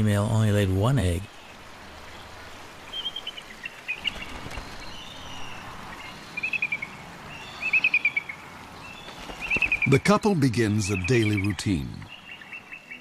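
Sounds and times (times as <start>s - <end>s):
eagle chittering call: 9.7s - 13.0s.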